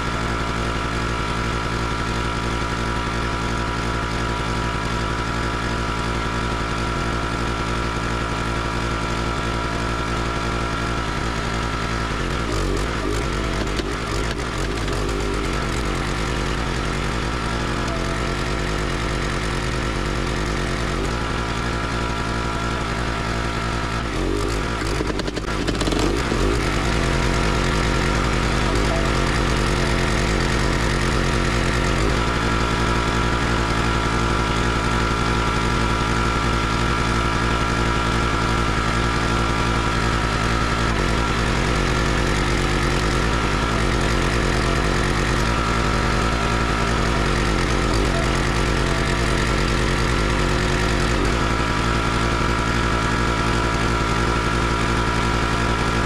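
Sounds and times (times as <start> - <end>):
small gasoline engine running: 0.0 - 56.0.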